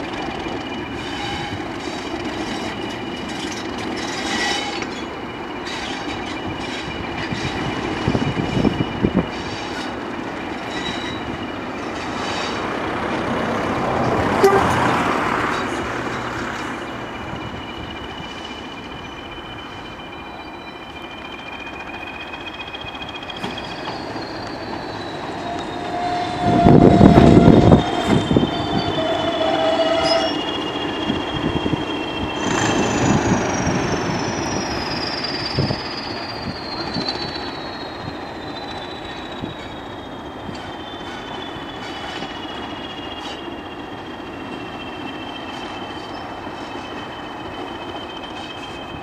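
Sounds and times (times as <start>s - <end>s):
diesel locomotive engine running: 0.0s - 49.0s
turbocharger whistling: 16.8s - 49.0s.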